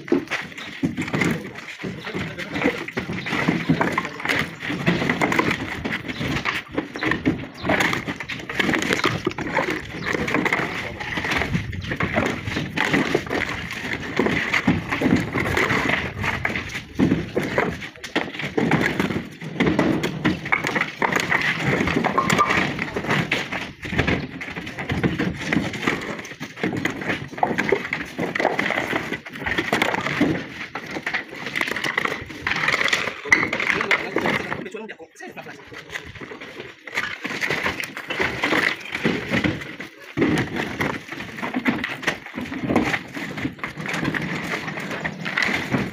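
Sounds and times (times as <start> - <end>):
stone slabs clattering: 0.0 - 45.9.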